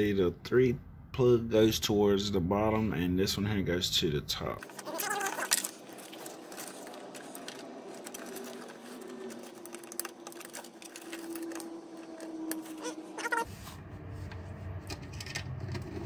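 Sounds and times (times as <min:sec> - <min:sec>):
plastic connectors clicking and rattling: 0:04.6 - 0:12.7.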